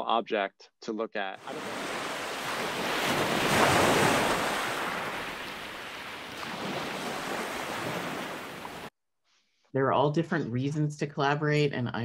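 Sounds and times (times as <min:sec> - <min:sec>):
ocean waves washing: 0:01.4 - 0:08.9.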